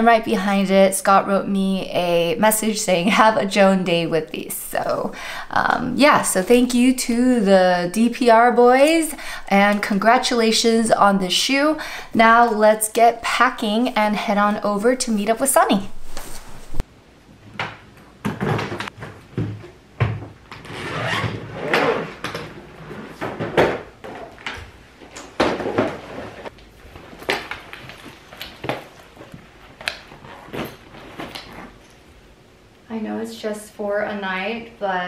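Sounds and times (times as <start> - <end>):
fabric rustling: 15.6 - 16.9.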